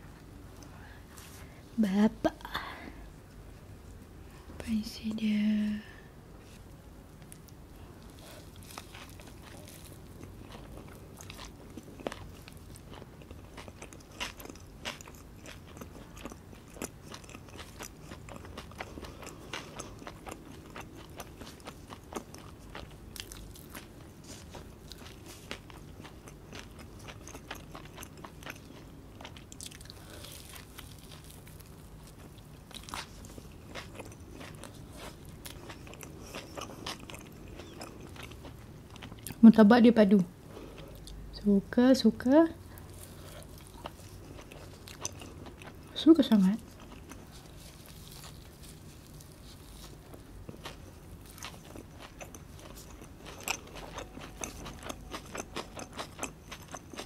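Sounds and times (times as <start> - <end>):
chewing and biting food: 7.2 - 39.4, 42.7 - 57.0
crisp crust crunching: 7.3 - 39.1, 42.8 - 57.0.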